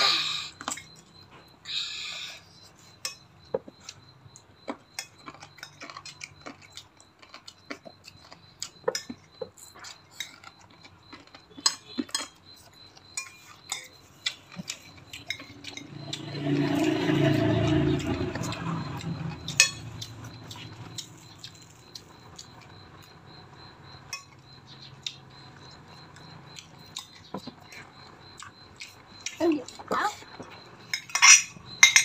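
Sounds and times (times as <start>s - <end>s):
cutlery clinking on ceramic plates: 30.9s - 32.0s.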